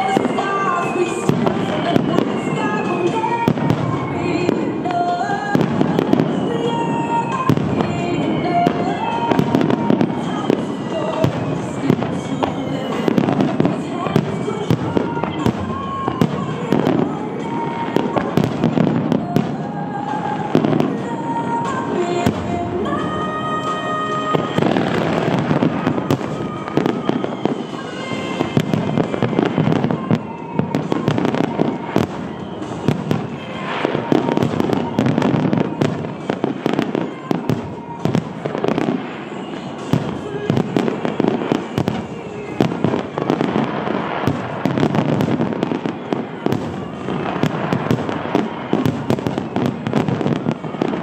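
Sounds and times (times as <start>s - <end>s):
fireworks bursting and crackling: 0.0s - 51.0s
song playing: 0.0s - 51.0s.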